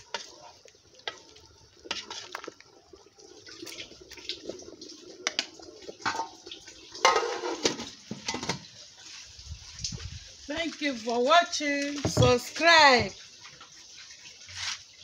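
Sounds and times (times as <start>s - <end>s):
wooden spoon stirring soup: 0.0s - 6.4s
soup bubbling: 0.0s - 15.0s.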